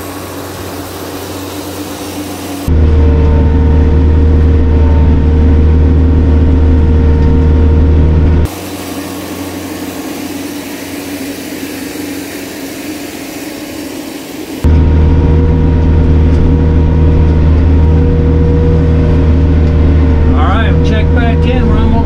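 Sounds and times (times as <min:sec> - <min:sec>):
hiss: 0:00.0 - 0:02.7, 0:08.5 - 0:14.6
tractor diesel engine running: 0:00.0 - 0:22.0.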